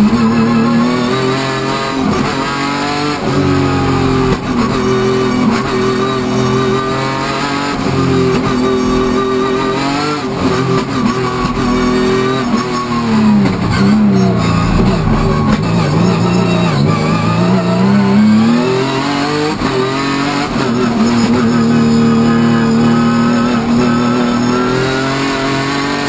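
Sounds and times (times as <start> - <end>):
race car engine revving: 0.0 - 26.0
guitar-led music: 11.6 - 18.2.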